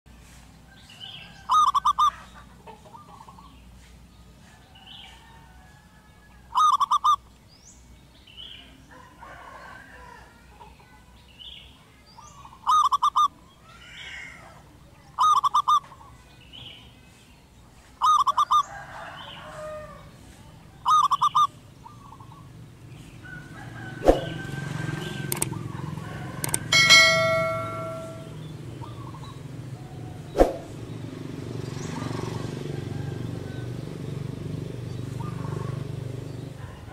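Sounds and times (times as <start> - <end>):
other birds calling: 0.8 - 3.9, 6.4 - 7.8, 12.2 - 16.9, 17.8 - 30.9, 34.8 - 36.9
dove cooing trills: 1.4 - 3.4, 6.5 - 7.2, 12.3 - 14.6, 15.2 - 16.1, 18.0 - 20.1, 20.8 - 22.6, 23.3 - 30.8.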